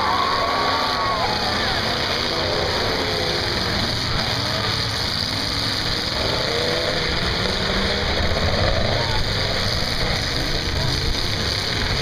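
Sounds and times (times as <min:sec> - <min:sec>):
truck engines revving: 0:00.0 - 0:12.0.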